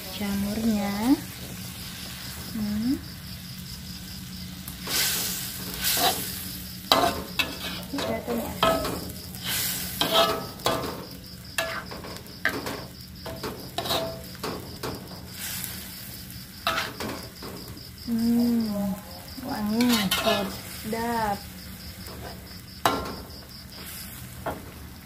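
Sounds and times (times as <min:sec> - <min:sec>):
food sizzling in a wok: 0:00.0 - 0:25.0
metal spatula scraping a wok: 0:04.7 - 0:17.8, 0:18.8 - 0:24.8.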